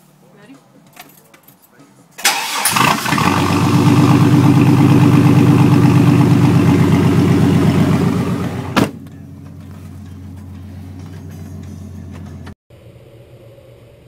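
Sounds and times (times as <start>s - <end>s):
starter motor cranking: 2.2s - 4.8s
truck engine idling loudly: 2.7s - 12.1s.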